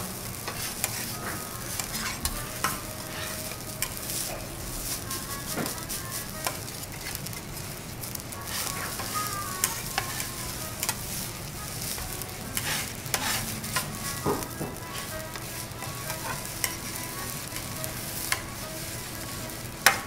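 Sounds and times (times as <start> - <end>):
rice sizzling on a griddle: 0.0 - 20.0
metal scraping on steel plate: 0.4 - 7.6, 8.4 - 20.0
metal spatulas clicking: 8.5 - 11.1, 12.6 - 13.9.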